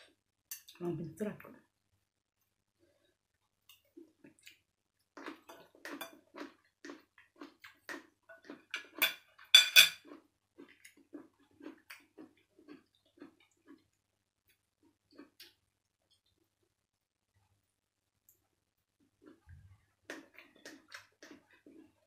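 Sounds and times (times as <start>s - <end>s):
cutlery clinking on a plate: 8.7s - 10.0s
chewing and lip-smacking: 10.0s - 16.4s, 19.2s - 22.0s.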